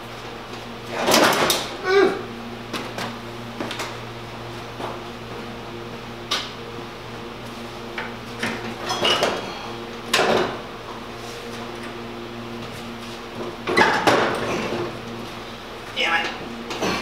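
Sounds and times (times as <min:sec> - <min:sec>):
steady low hum: 0:00.0 - 0:17.0
metal tools clanking: 0:08.8 - 0:09.4.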